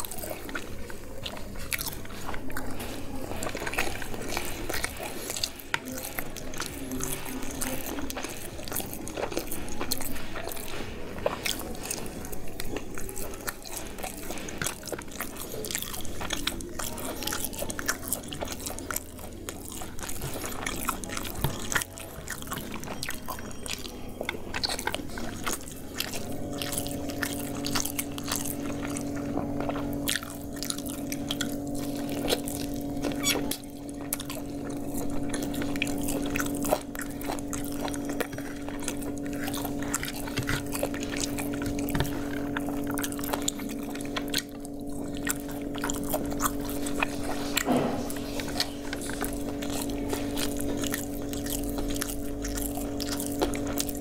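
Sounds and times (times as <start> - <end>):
close chewing: 0.0 - 54.0
steady low hum: 0.0 - 54.0
mouth clicks: 23.0 - 54.0.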